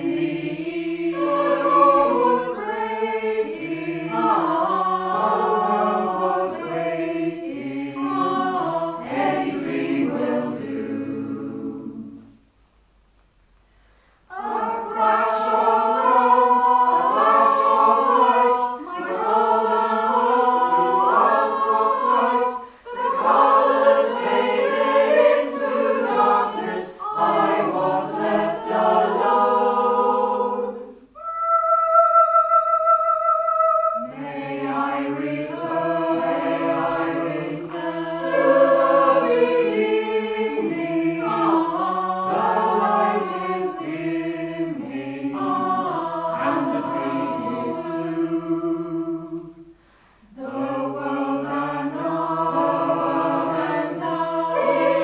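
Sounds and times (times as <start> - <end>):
mixed choir singing a cappella: 0.0 - 12.4, 14.3 - 55.0.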